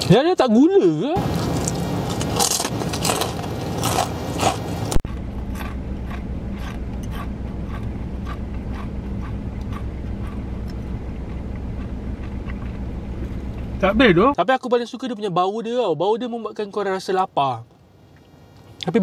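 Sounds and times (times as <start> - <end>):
low hum: 1.1 - 14.4
crunching fried chicken: 1.2 - 12.8
chewing close to microphone: 1.4 - 12.8.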